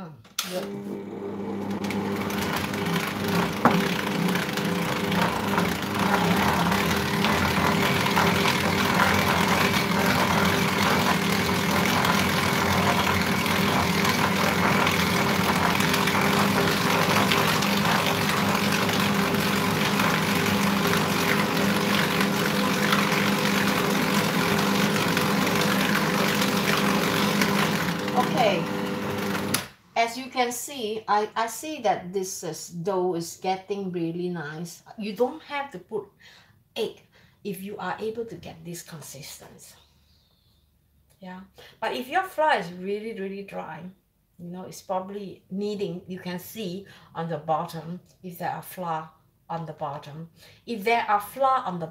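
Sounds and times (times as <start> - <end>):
stand mixer motor humming: 0.6 - 29.7.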